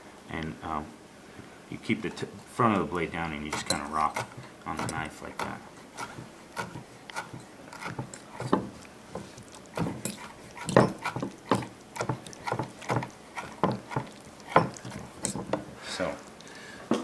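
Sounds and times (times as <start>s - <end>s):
knife chopping on wooden board: 3.5s - 15.7s.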